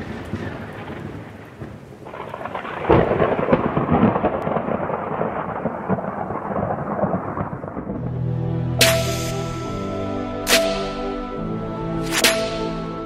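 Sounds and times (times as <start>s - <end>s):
thunderclap rumbling: 0.0s - 8.2s
steady rain: 0.0s - 9.8s.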